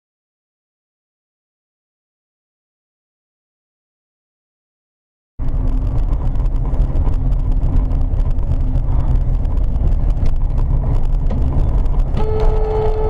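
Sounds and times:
car engine and road noise: 5.4s - 13.0s.

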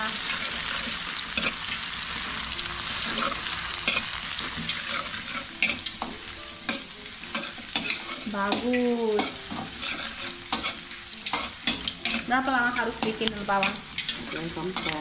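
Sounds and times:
shallots sizzling in hot oil: 0.0s - 15.0s
metal spatula scraping a wok: 0.1s - 15.0s.

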